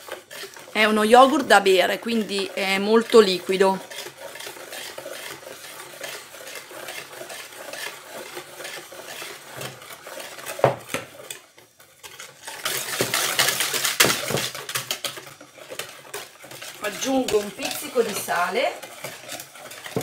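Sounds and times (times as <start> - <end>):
whisk beating batter in bowl: 0.0 - 20.0
knock: 10.6 - 10.8.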